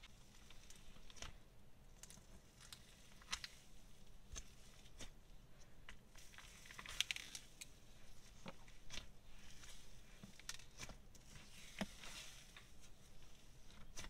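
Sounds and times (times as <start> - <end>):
slime crackling and popping: 6.2 - 7.7.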